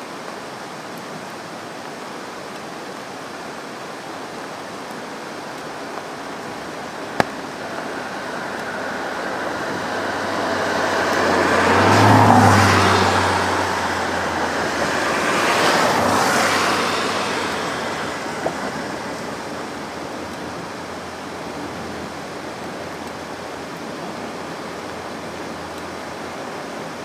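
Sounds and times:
river rushing: 0:00.0 - 0:27.0
diesel railcar crossing bridge: 0:07.5 - 0:21.1.

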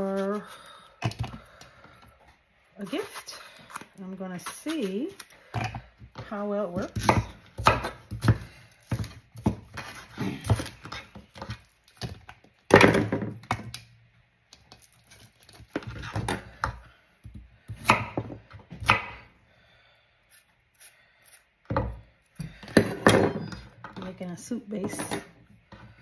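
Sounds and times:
knife chopping on wooden board: 0:06.7 - 0:13.3, 0:17.7 - 0:19.2.

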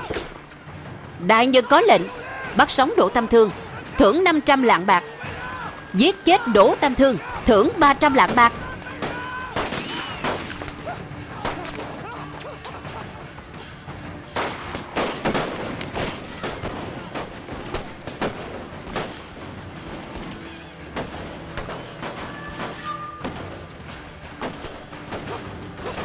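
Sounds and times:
background music with low note: 0:00.0 - 0:26.0
rifle shots: 0:08.1 - 0:10.8, 0:14.3 - 0:19.4.

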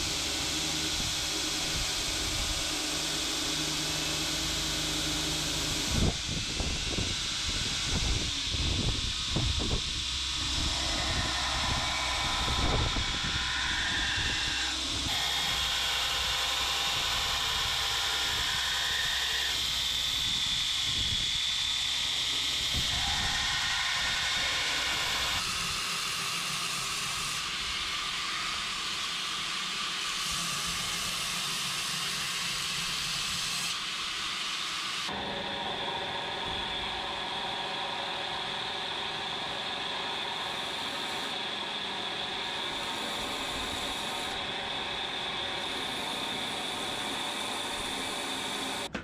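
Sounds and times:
belt grinder grinding steel: 0:00.0 - 0:20.3, 0:38.4 - 0:48.9.

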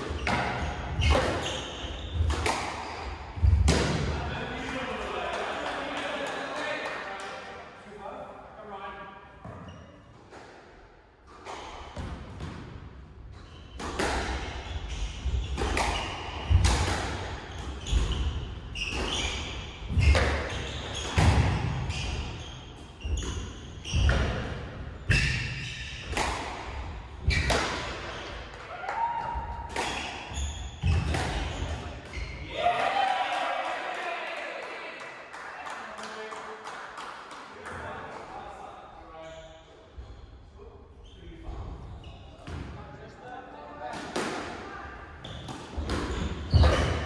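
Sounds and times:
squash ball hitting rackets and walls: 0:00.0 - 0:04.2, 0:09.4 - 0:32.5, 0:43.9 - 0:47.0.

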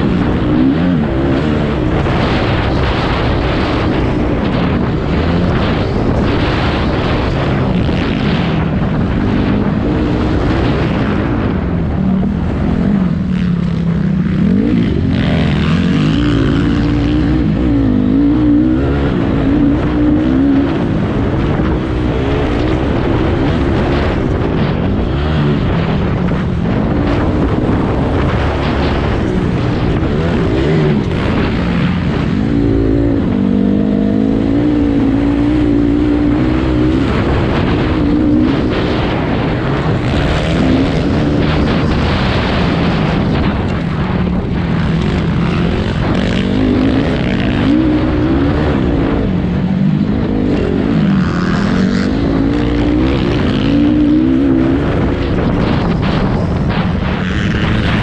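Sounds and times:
motocross engine revving: 0:00.0 - 0:58.0
wind on microphone: 0:00.0 - 0:58.0.

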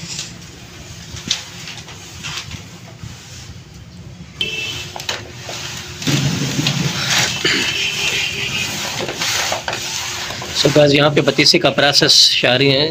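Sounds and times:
background noise: 0:00.0 - 0:12.9
hands kneading sticky dough: 0:04.9 - 0:12.1.

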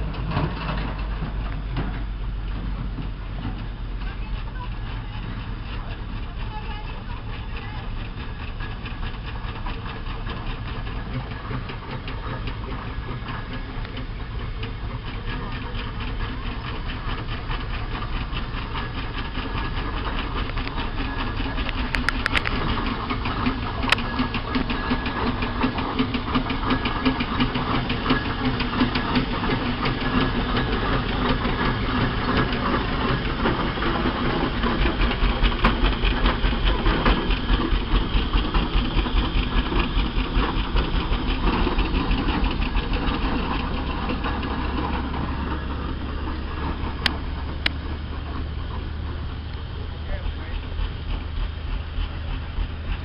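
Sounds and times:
steam engine exhaust beating: 0:00.0 - 0:53.0.

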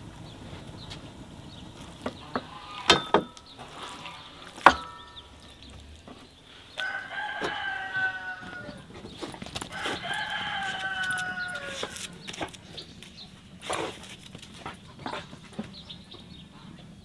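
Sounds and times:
rooster crowing: 0:06.7 - 0:09.0, 0:09.7 - 0:12.2.

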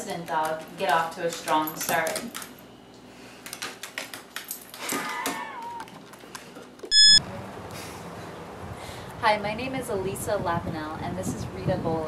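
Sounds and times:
loud electronic beep: 0:06.9 - 0:07.2.

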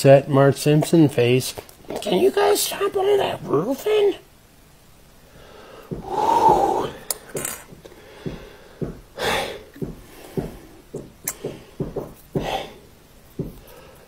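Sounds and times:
heavy noisy breaths: 0:05.2 - 0:14.0
man gulping: 0:05.9 - 0:07.8.

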